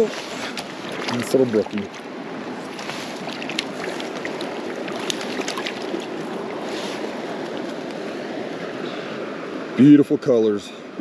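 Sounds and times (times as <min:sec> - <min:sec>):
short water splashes: 0:00.0 - 0:07.9
water rushing over rocks: 0:00.0 - 0:09.8.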